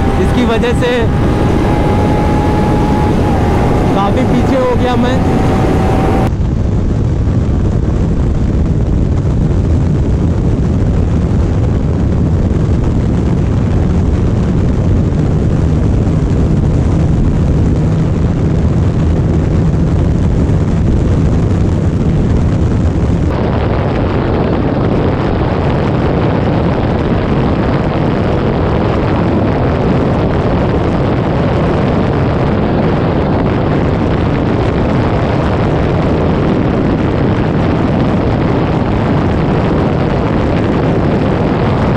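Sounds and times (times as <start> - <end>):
motorcycle engine drone: 0.0 - 8.2
rushing wind noise: 0.0 - 41.9.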